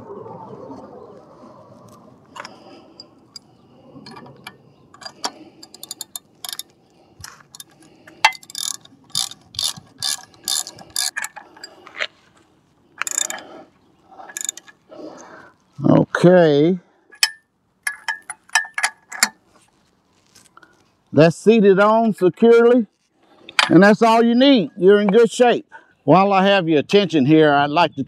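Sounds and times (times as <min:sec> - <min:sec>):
ratchet wrench clicking: 0:05.0 - 0:11.4, 0:13.0 - 0:13.5, 0:14.3 - 0:14.8.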